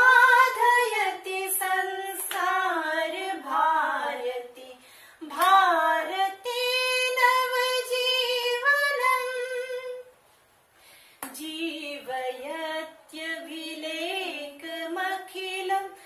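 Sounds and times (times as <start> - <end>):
woman singing: 0.0 - 10.1, 11.2 - 16.0.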